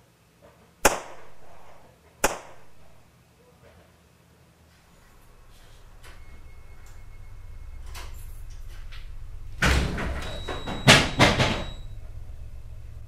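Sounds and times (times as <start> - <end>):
low steady hum: 0.0 - 13.0
clattering bangs: 5.2 - 13.0.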